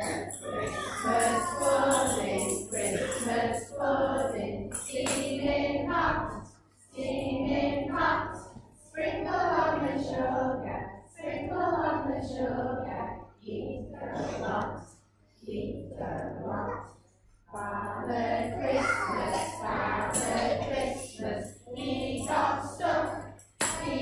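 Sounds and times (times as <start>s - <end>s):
children singing together: 0.0s - 24.0s.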